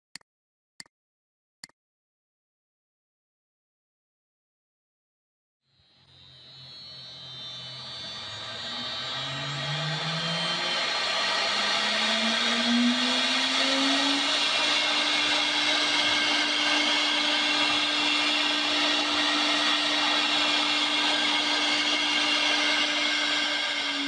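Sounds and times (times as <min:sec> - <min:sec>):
router spindle whine: 0:05.7 - 0:24.0
router bit cutting hiss: 0:06.1 - 0:24.0.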